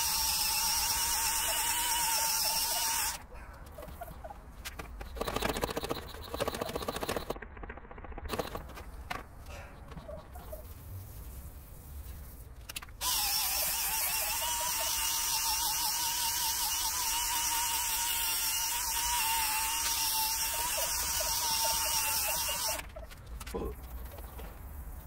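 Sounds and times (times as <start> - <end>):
cordless drill whirring: 13.0 - 22.8.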